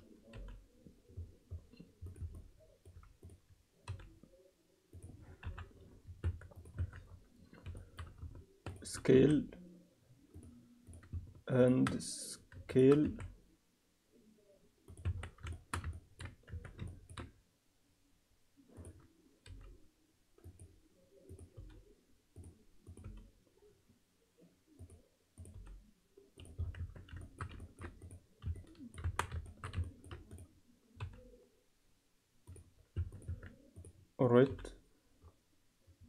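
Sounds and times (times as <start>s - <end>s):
keyboard and mouse clicking: 0.3s - 4.2s, 14.9s - 17.3s, 22.4s - 23.3s, 24.8s - 25.8s, 26.4s - 31.2s, 32.5s - 34.6s.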